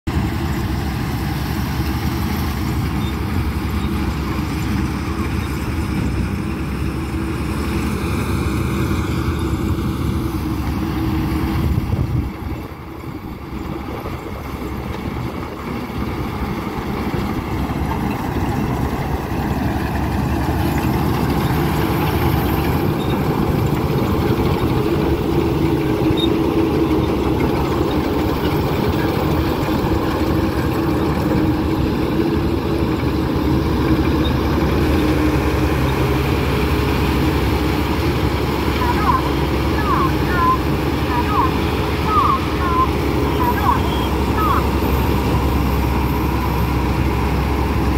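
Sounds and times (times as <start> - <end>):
combine harvester droning: 0.1 - 47.9.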